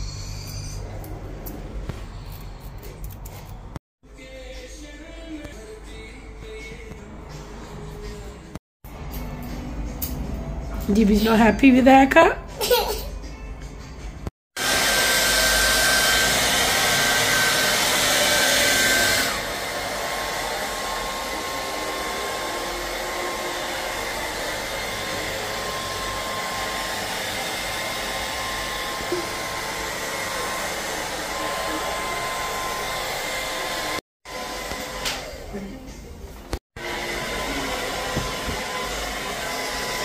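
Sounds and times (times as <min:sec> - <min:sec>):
hair dryer blowing: 0:14.6 - 0:36.0, 0:36.8 - 0:40.0.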